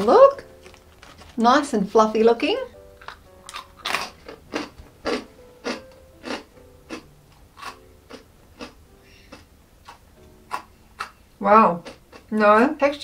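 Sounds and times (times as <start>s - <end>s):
croutons being chewed: 0.6s - 1.4s, 3.0s - 11.2s, 11.8s - 12.3s.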